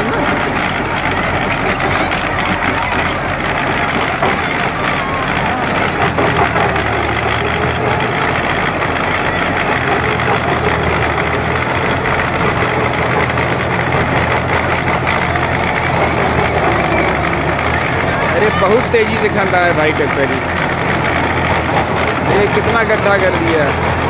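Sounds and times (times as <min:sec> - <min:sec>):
tractor diesel engine running: 0:00.0 - 0:24.0
trenching machine cutting soil: 0:00.0 - 0:24.0.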